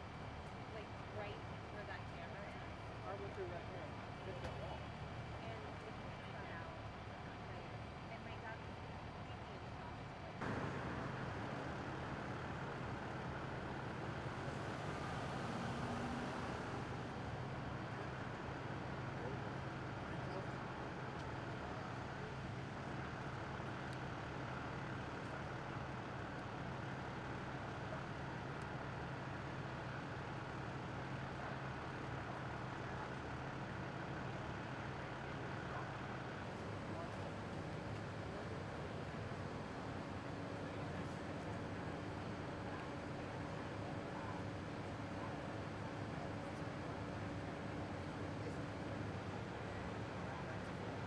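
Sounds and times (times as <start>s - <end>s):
idling vehicle engines hum: 0.0s - 51.0s
street traffic noise: 0.0s - 51.0s
car driving past: 14.4s - 17.2s.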